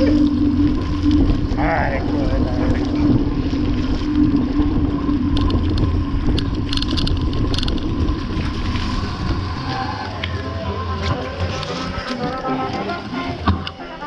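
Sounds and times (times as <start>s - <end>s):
wind buffeting microphone: 0.0s - 12.1s
bike clicks and rattles: 5.3s - 8.2s.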